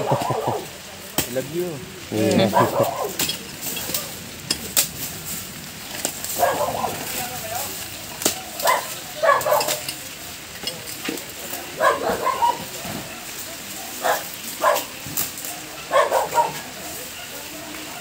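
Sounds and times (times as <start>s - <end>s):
dog barking: 0.0s - 0.7s, 2.4s - 3.2s, 6.4s - 7.1s, 8.6s - 9.9s, 11.7s - 13.2s, 13.8s - 16.8s
dry leaves and sticks crackling: 0.0s - 18.0s.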